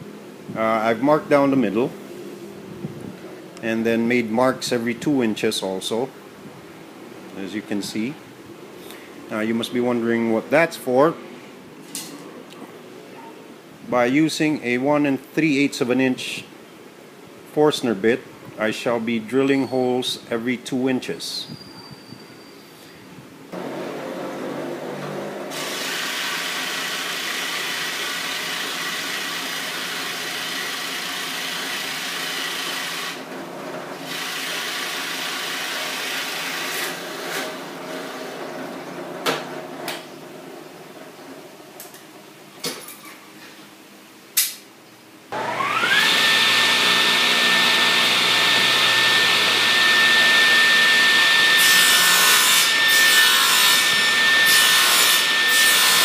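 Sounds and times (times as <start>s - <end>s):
table saw whining: 23.6s - 38.4s, 45.4s - 56.0s
saw blade cutting board: 24.9s - 33.2s, 45.4s - 56.0s
drill press boring wood: 25.5s - 38.4s, 45.4s - 56.0s.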